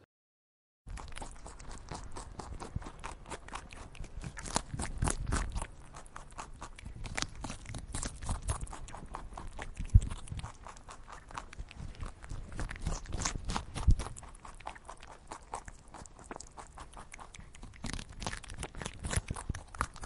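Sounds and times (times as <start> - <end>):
rabbit crunching dry food: 0.9 - 20.0.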